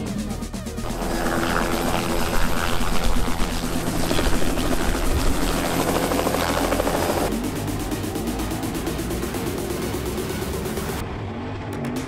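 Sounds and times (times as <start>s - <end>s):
helicopter engine tone: 0.0s - 11.9s
helicopter rotor beating: 0.0s - 12.0s.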